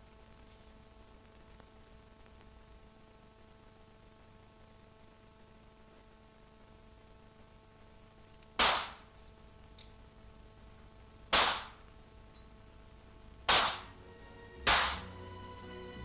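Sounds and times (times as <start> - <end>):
pistol shots: 8.6 - 9.1, 11.3 - 11.8, 13.5 - 13.9, 14.7 - 15.1.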